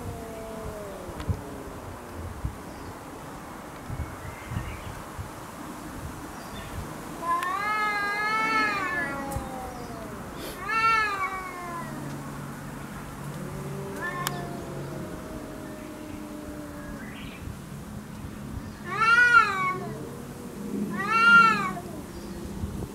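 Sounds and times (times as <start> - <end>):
cats yowling: 0.0 - 2.2, 7.2 - 12.3, 13.2 - 17.5, 18.8 - 22.9
cat growling: 0.0 - 2.4, 7.2 - 12.4, 13.2 - 17.4, 18.8 - 22.9.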